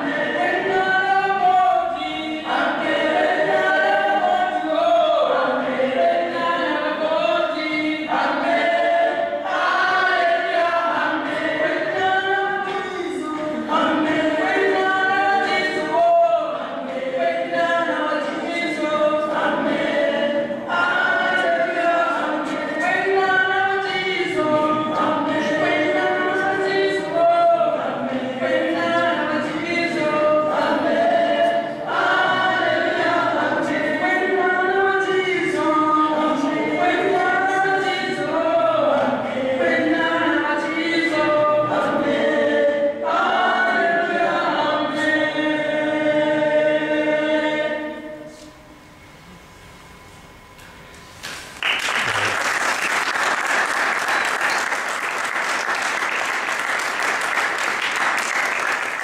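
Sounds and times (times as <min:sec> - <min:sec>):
choir singing over loudspeakers: 0:00.0 - 0:48.6.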